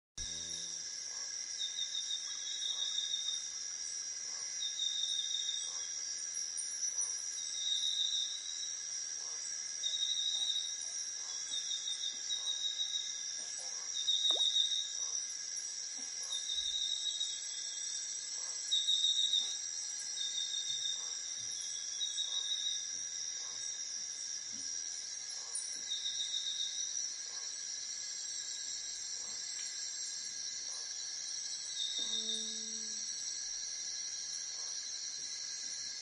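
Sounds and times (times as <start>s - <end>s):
insects whining: 0.2s - 36.0s.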